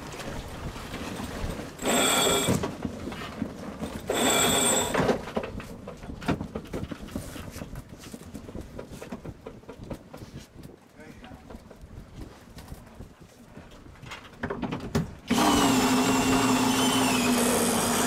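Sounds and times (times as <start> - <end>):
mechanical whirring bursts: 15.3 - 18.0.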